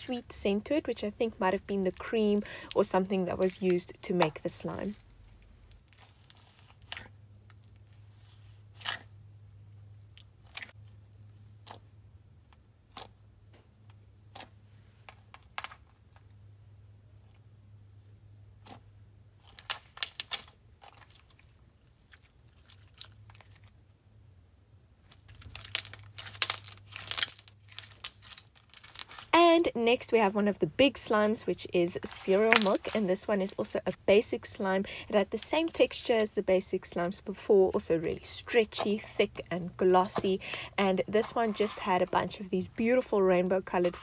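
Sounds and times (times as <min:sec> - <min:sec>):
slime popping and crackling: 0:19.5 - 0:21.3, 0:25.2 - 0:29.4, 0:32.4 - 0:33.0.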